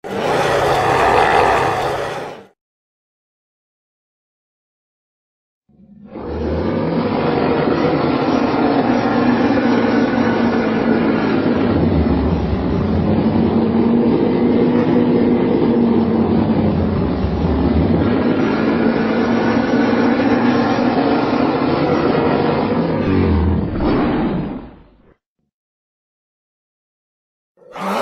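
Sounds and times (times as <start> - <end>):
creature rasping scream: 0.0 - 2.5, 23.0 - 24.1, 27.6 - 28.0.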